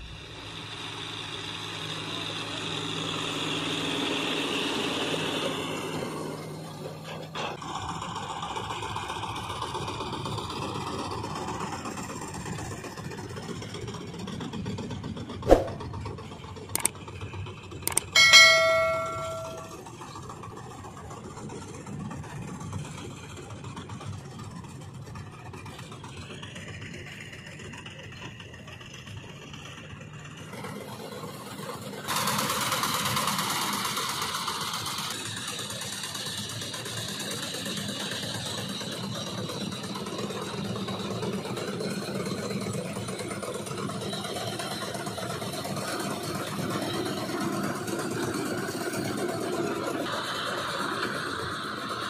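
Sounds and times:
diesel farm machinery running: 0.0s - 52.0s
sharp clicks: 17.9s - 18.2s
metallic clang ringing: 17.9s - 19.8s.

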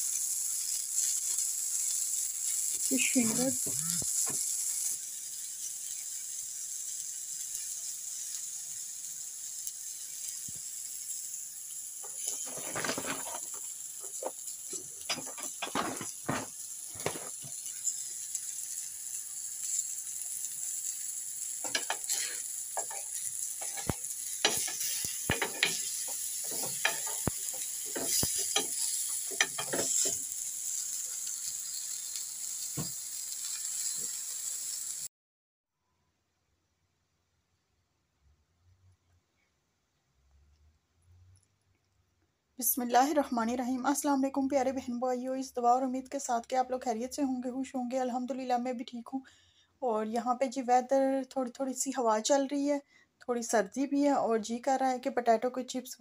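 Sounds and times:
food sizzling in a frying pan: 0.0s - 35.1s
clicks and rustles: 12.1s - 17.6s.

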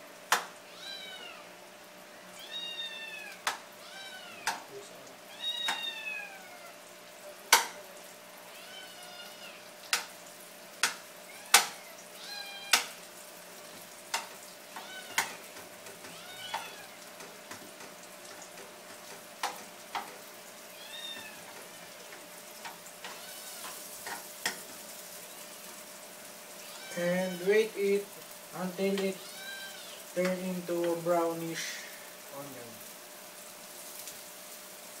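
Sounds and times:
onions frying in a pan: 0.0s - 35.0s
cat meowing: 0.6s - 1.5s, 2.1s - 4.7s, 5.3s - 6.8s, 8.5s - 9.7s, 11.3s - 13.0s, 14.7s - 17.1s, 20.7s - 21.5s, 23.0s - 23.8s, 26.6s - 27.5s, 29.2s - 30.0s
spatula clacking against pan: 10.8s - 11.8s, 12.7s - 13.0s, 14.1s - 20.3s, 21.4s - 24.8s.

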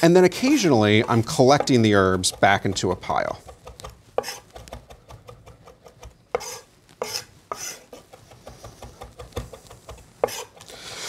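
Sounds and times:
knife scraping board: 0.4s - 10.7s
knife chopping on wooden board: 1.0s - 10.6s.

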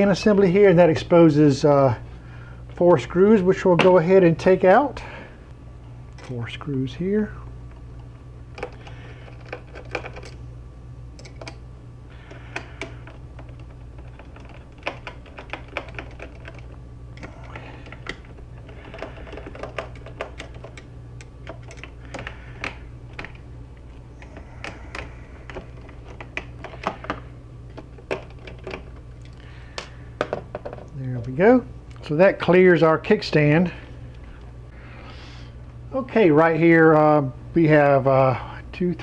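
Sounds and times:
steady low hum: 0.0s - 39.0s.

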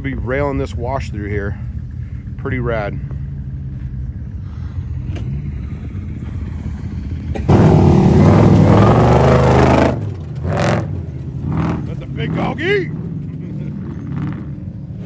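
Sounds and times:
vehicle engine running low: 0.0s - 15.0s
loud engine rushing past: 4.3s - 15.0s.

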